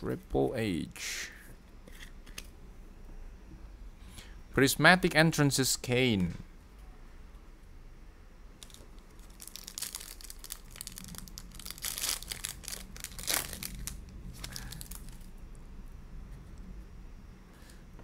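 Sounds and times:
foil wrapper crinkling and tearing: 8.6 - 15.3.

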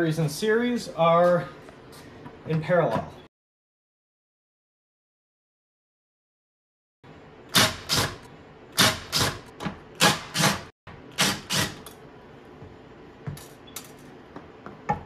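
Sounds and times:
impact driver hammering: 7.5 - 8.2, 8.8 - 11.9.

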